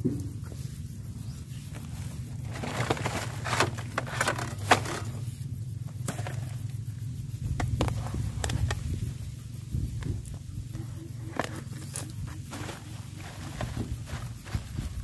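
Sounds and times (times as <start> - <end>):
steady low hum: 0.0 - 15.0
scraping and rustling: 1.5 - 5.3, 10.0 - 15.0.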